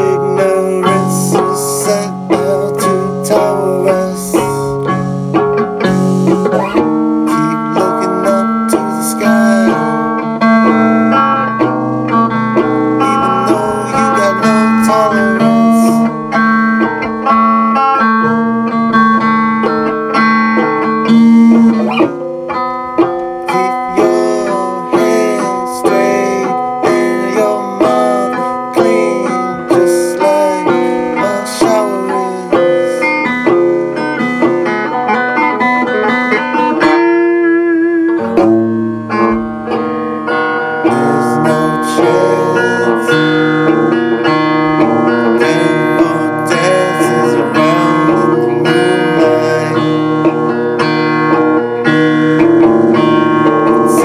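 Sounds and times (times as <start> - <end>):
electric guitar lead with bent notes: 0.0 - 54.0.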